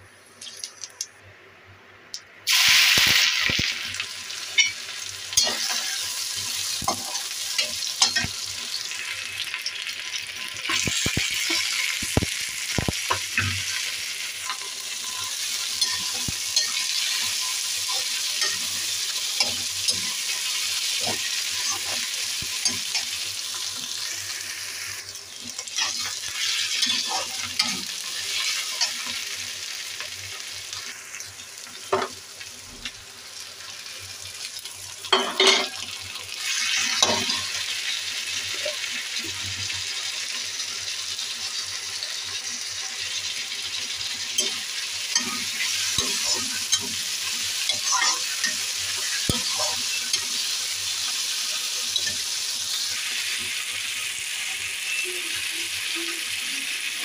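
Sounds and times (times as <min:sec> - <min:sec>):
cabbage sizzling in hot oil: 0:02.5 - 0:57.0
metal spatula scraping pan: 0:05.4 - 0:08.3.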